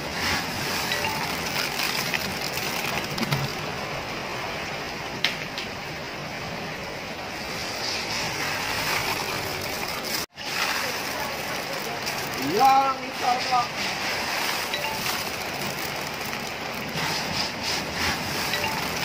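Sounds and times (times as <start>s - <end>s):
heavy rain: 0.0s - 19.0s.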